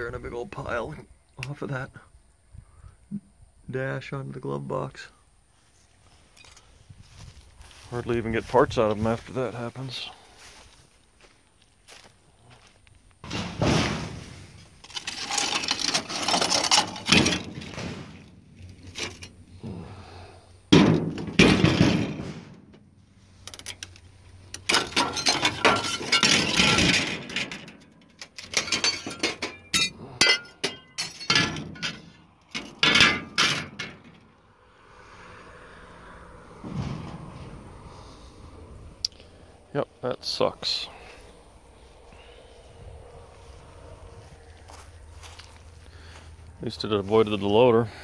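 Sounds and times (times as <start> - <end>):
footsteps crunching through debris: 5.6 - 19.2, 43.3 - 47.4
glass clinks and clicks: 28.4 - 32.0.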